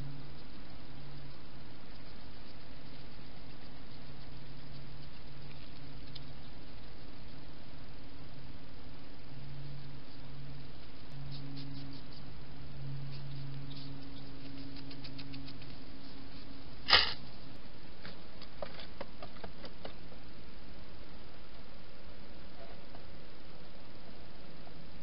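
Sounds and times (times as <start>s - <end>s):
steady hiss: 0.0s - 18.6s
hedgehog clicking and scuffling: 0.4s - 6.9s, 13.1s - 17.3s.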